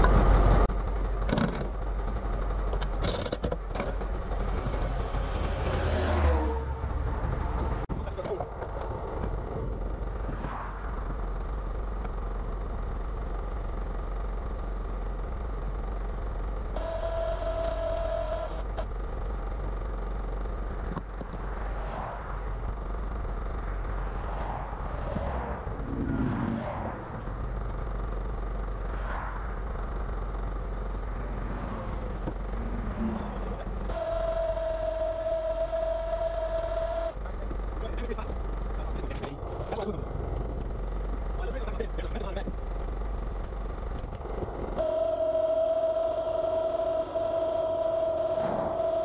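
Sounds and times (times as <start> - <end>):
steady low rumble: 0.0 - 16.9, 18.6 - 45.0
vehicles passing: 0.0 - 49.0
brief steady whine: 31.2 - 37.2, 44.8 - 49.0.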